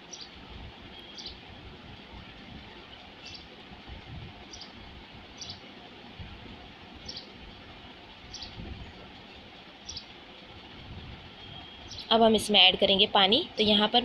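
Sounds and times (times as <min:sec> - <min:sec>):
bird chirping: 0:00.0 - 0:00.3, 0:00.9 - 0:01.4, 0:03.2 - 0:03.6, 0:04.5 - 0:04.8, 0:05.4 - 0:05.7, 0:07.0 - 0:07.4, 0:08.3 - 0:10.1, 0:11.4 - 0:12.2.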